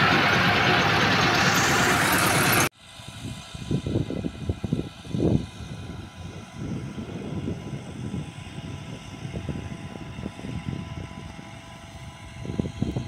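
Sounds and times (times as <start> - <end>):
tractor engine running: 0.0 - 2.7
wind rumble on microphone: 2.8 - 13.0.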